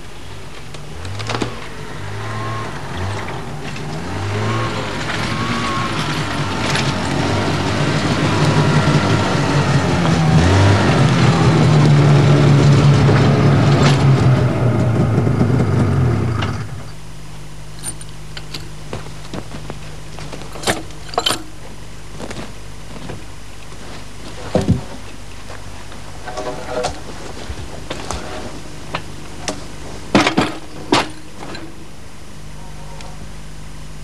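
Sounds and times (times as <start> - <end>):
snowmobile engine revving: 1.0 - 16.7.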